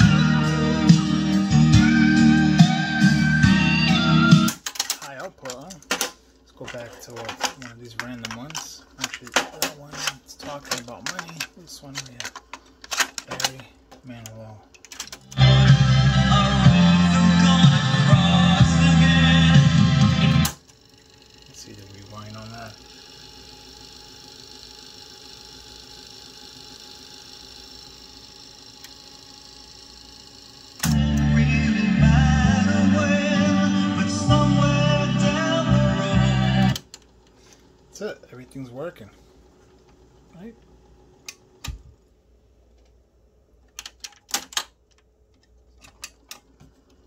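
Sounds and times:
cassette deck rewinding whir: 0.0s - 5.8s, 6.6s - 37.8s.

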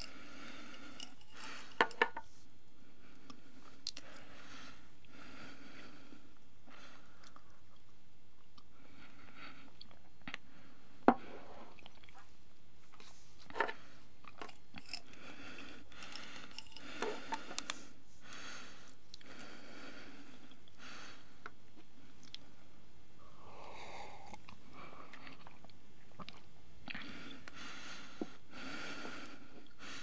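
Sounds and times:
person chewing and crunching: 14.2s - 15.2s, 24.2s - 27.0s.

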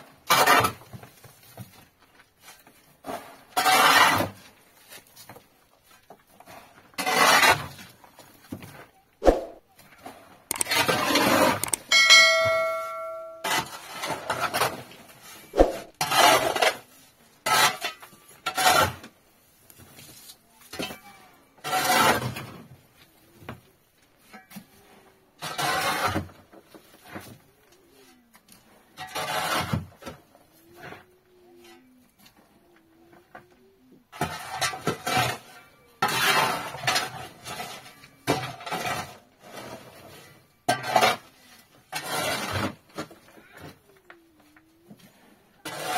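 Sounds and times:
metal object ringing: 11.6s - 13.7s.

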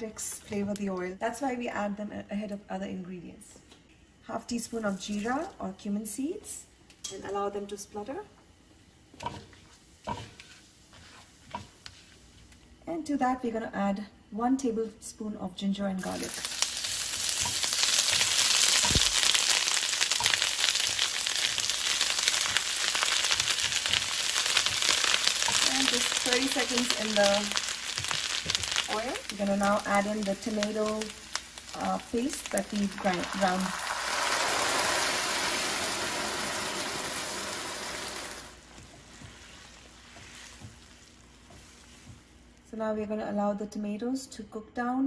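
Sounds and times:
paste sizzling in oil: 9.1s - 12.6s, 16.0s - 42.5s
soft knocks of stirring: 38.7s - 42.4s.

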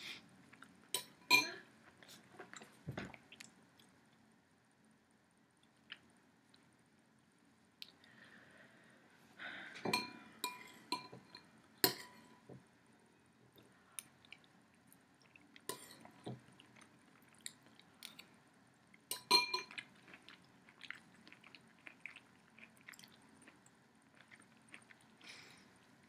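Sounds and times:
spoon clinking against bowl: 10.0s - 12.4s, 19.1s - 19.7s
eating sounds: 19.7s - 26.0s.

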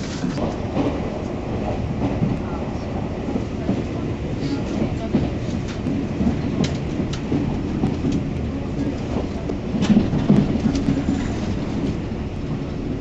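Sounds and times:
train low rumble: 0.0s - 13.0s.

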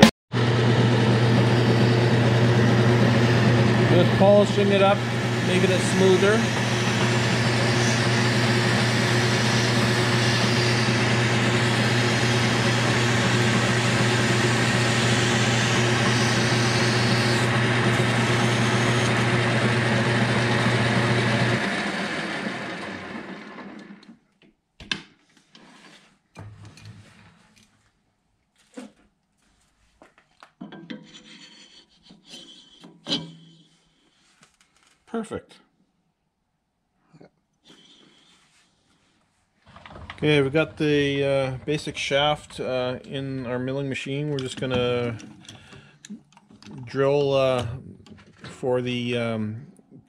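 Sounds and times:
metal lathe humming: 0.0s - 24.0s, 30.9s - 33.7s, 39.7s - 45.7s
abrasive cloth rasping on shaft: 3.9s - 19.8s, 31.1s - 33.8s.

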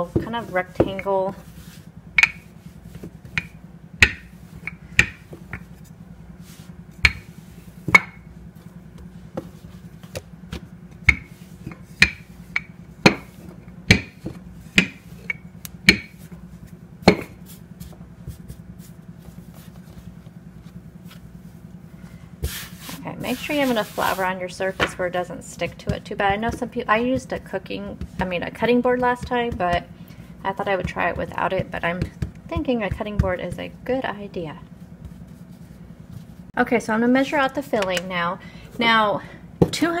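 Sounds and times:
rolling pin rolling dough: 0.0s - 21.7s, 22.4s - 36.6s
steady low hum: 0.0s - 40.0s
rolling pin clacking on counter: 2.2s - 2.4s.

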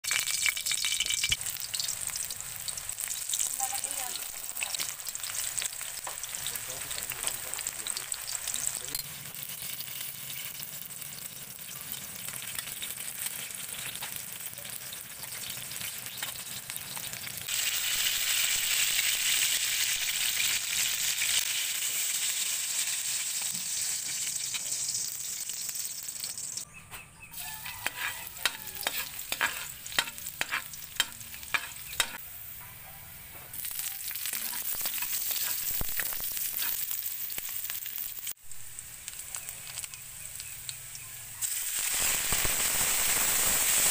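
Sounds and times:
food sizzling in oil: 0.0s - 26.7s, 27.4s - 32.6s, 33.5s - 43.9s
metal tongs clicking on wok: 27.9s - 32.2s.

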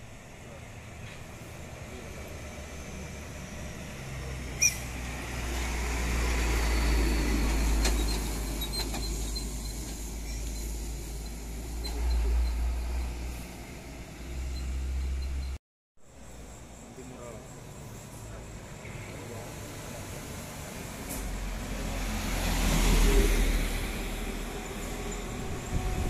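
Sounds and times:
diesel truck passing: 0.3s - 15.6s, 17.0s - 26.0s.

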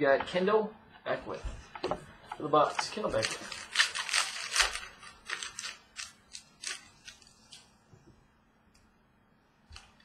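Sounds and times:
trading cards rustling and snapping: 2.7s - 7.7s.

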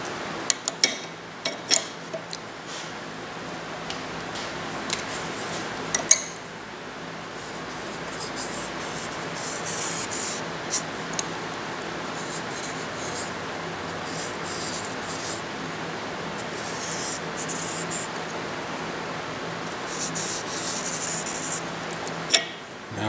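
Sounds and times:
marker scratching on copper sheet: 7.4s - 10.9s, 12.2s - 13.3s, 13.9s - 15.4s, 16.4s - 18.1s, 19.9s - 21.6s.

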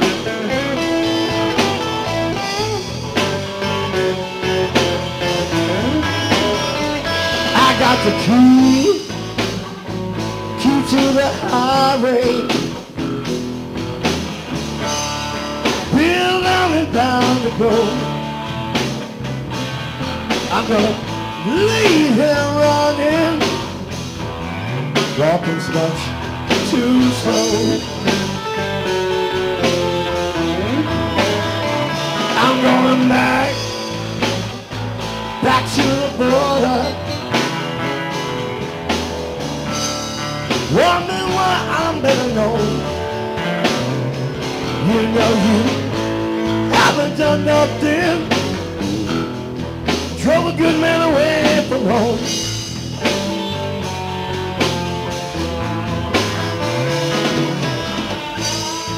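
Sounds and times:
harmonica bending notes: 0.0s - 14.0s, 26.2s - 35.6s, 52.3s - 58.9s
blues band playing: 0.0s - 58.9s.

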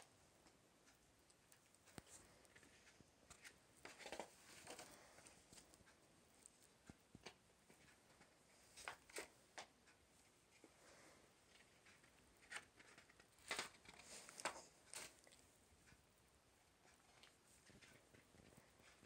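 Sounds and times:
paper pages rustling: 2.0s - 5.7s, 11.5s - 15.3s.

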